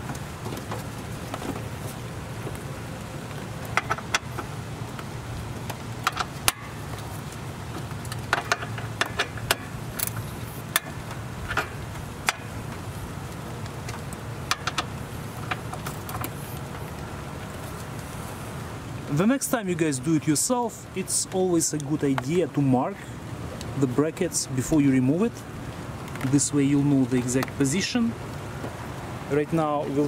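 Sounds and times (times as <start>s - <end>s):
steady low hum: 0.0s - 21.1s.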